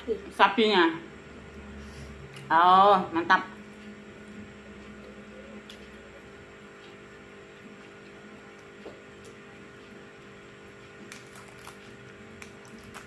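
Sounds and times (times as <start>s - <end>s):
low electrical hum: 0.0s - 13.0s
people chewing and eating: 7.6s - 13.0s.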